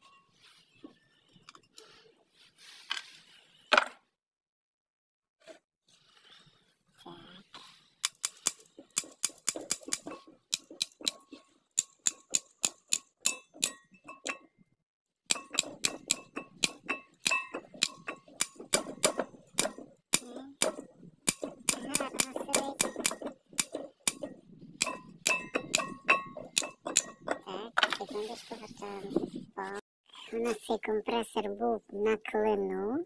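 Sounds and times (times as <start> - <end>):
ratchet wrench clicking: 8.0 - 11.2, 11.8 - 13.8.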